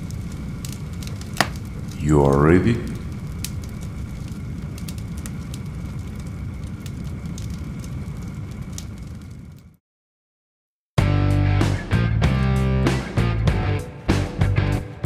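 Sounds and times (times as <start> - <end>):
fire crackles: 0.0 - 9.8
low rumble of flames: 0.0 - 9.8.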